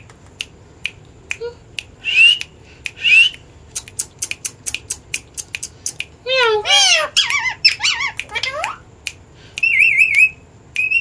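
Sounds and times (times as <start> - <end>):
parrot chirps: 2.0 - 8.9, 9.6 - 11.0.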